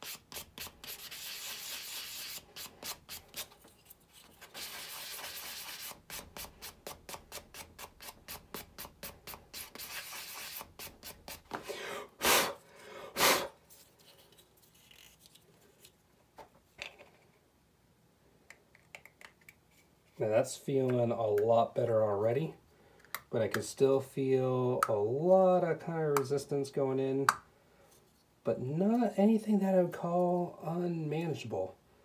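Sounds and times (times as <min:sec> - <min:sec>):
sanding plastic by hand: 0:00.0 - 0:11.6.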